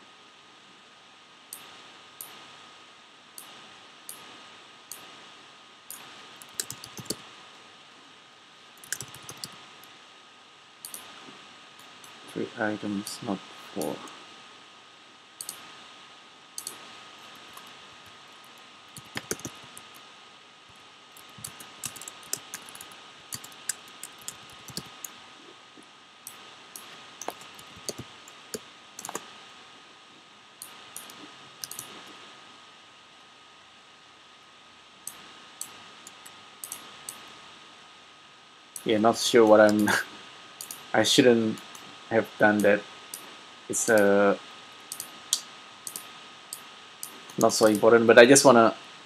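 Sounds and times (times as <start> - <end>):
steady faint hiss: 0.0 - 49.0
keyboard typing: 5.9 - 7.2, 8.8 - 9.6, 10.8 - 11.1, 15.4 - 15.7, 16.6 - 18.2, 18.9 - 20.0, 21.2 - 25.2, 26.3 - 29.2, 30.6 - 32.1, 35.1 - 37.3, 40.6 - 40.9, 44.9 - 45.2, 45.8 - 47.8.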